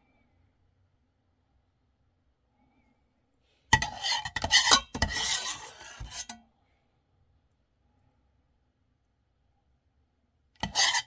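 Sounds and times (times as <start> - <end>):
utensil scraping cookware: 3.7 - 6.4, 10.6 - 11.0.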